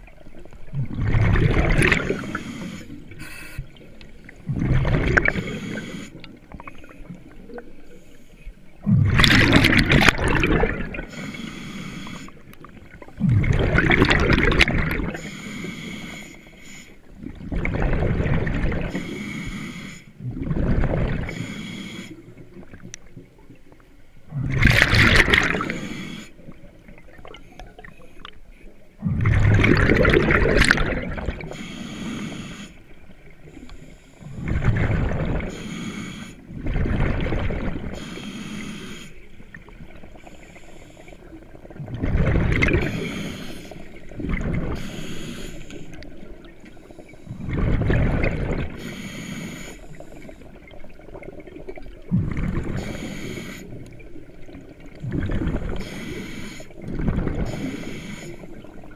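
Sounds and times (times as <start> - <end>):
bubbles bursting: 0.7 - 2.4, 4.4 - 5.4, 8.9 - 11.1, 13.1 - 15.2, 17.4 - 18.9, 24.3 - 25.8, 29.0 - 31.5, 41.7 - 42.9, 47.5 - 48.8
diver breathing through regulator: 1.8 - 3.8, 4.9 - 6.4, 9.6 - 12.4, 14.6 - 17.0, 18.8 - 20.3, 21.2 - 22.4, 24.5 - 26.5, 31.4 - 34.7, 35.3 - 36.5, 37.8 - 39.4, 40.1 - 41.4, 42.6 - 46.1, 48.7 - 50.6, 52.2 - 54.0, 55.5 - 58.8.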